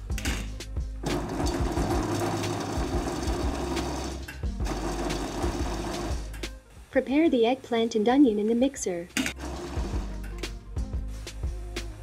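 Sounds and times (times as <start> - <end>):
food processor motor and blade: 1.0 - 6.2.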